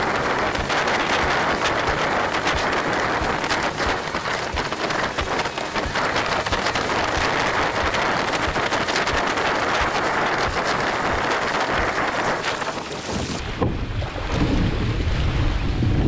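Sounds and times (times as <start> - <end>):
water rushing along hull: 0.0 - 16.0
wind: 0.0 - 16.0.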